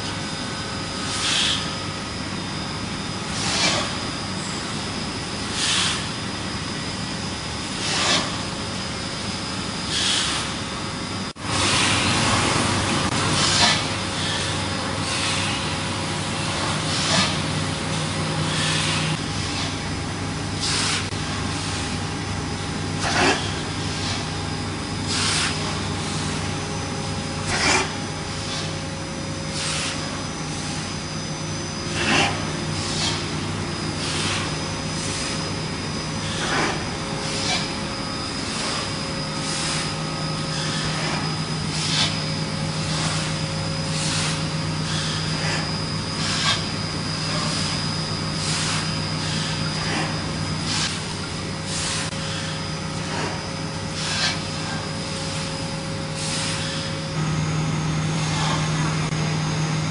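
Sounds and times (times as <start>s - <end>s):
machine hum: 0.0s - 59.9s.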